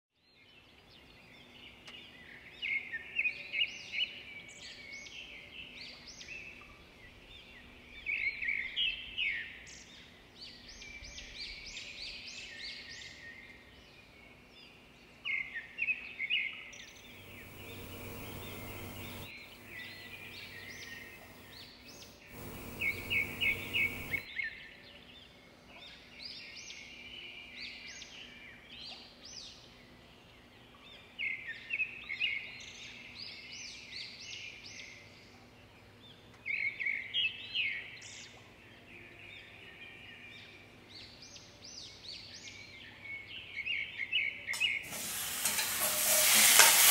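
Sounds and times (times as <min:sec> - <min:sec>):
birds chirping and singing: 0:16.9 - 0:24.2
faint steady hum: 0:17.0 - 0:24.2
hiss: 0:17.2 - 0:21.6, 0:22.3 - 0:24.2, 0:44.6 - 0:46.9.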